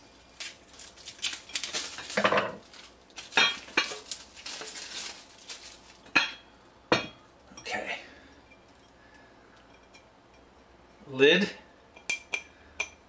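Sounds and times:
plastic wrapping crinkling: 0:00.0 - 0:06.2
glass clinking and knocking: 0:06.1 - 0:07.8.

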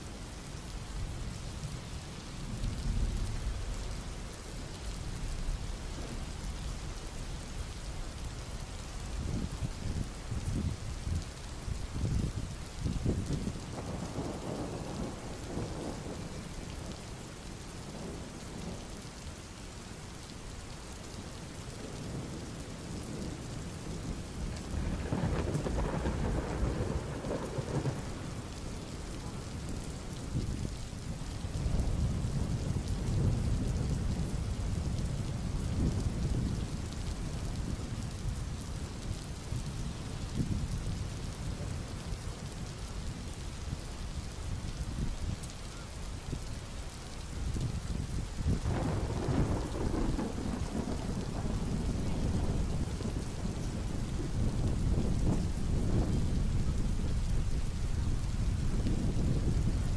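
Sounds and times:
thunder rumbling: 0:12.0 - 0:17.0, 0:21.8 - 0:41.7, 0:47.5 - 0:59.9.

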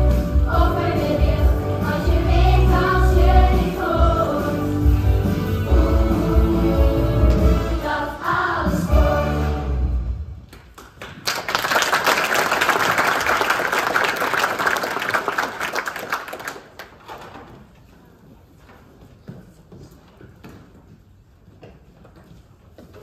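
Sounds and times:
group singing over backing music: 0:00.0 - 0:09.9
audience applauding: 0:10.6 - 0:17.2.

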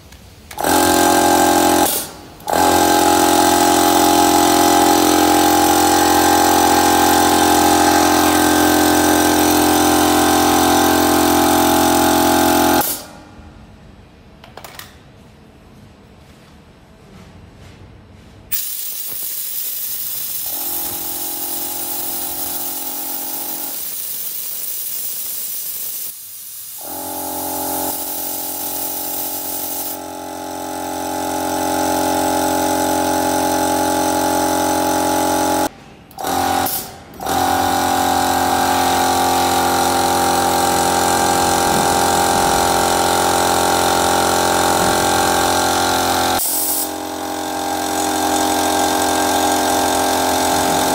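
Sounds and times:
air compressor clattering: 0:00.5 - 0:13.2, 0:18.5 - 0:26.0, 0:26.8 - 0:50.9
motor hum: 0:39.5 - 0:46.4.

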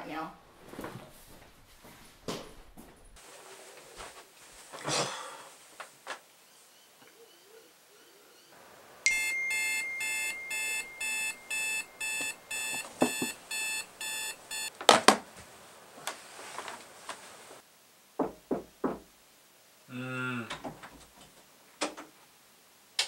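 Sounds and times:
alarm beeping: 0:09.1 - 0:14.7
sharp knocks on alarm: 0:09.2 - 0:14.7.

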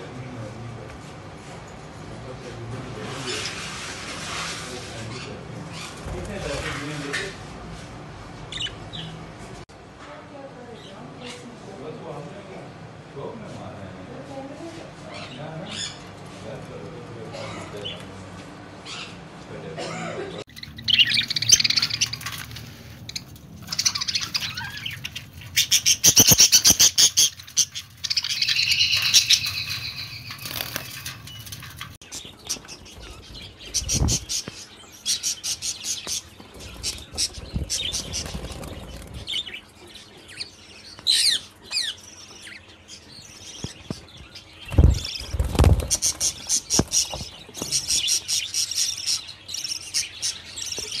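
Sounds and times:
budgerigars chirping and chattering: 0:02.4 - 0:07.4, 0:08.5 - 0:09.2, 0:15.0 - 0:16.6, 0:17.3 - 0:18.1, 0:18.8 - 0:19.2, 0:20.3 - 0:51.0.

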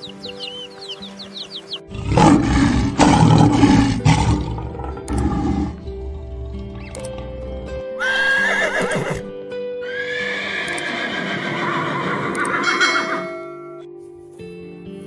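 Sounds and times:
chicks peeping: 0:00.0 - 0:01.9
background music: 0:00.0 - 0:15.0
lion roaring: 0:01.9 - 0:06.9
horse whinnying: 0:08.0 - 0:13.3.

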